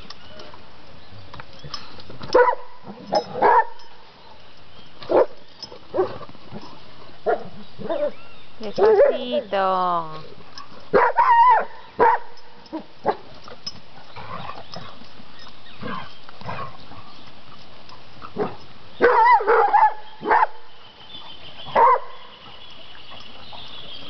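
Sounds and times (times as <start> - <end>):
dog barking and yelping: 2.3 - 3.8, 7.2 - 9.5, 10.9 - 13.3, 18.4 - 20.5, 21.7 - 22.2.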